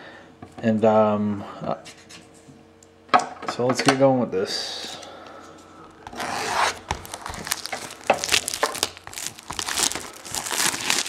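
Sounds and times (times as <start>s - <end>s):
plastic wrap crinkling: 5.9s - 11.0s.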